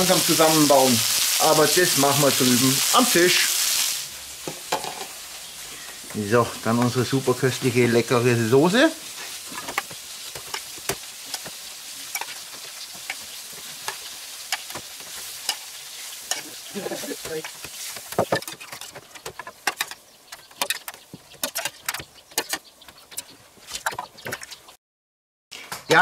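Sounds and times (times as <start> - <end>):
steady hiss: 0.0 - 18.2.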